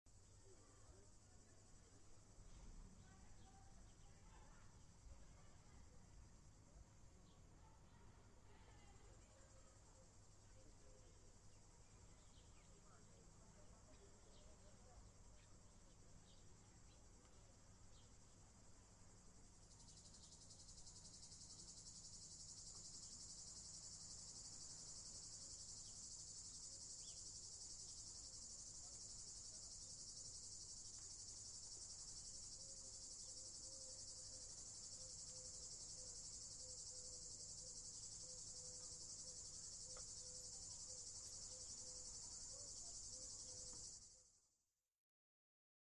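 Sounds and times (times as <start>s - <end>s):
cicadas buzzing: 17.8s - 44.3s.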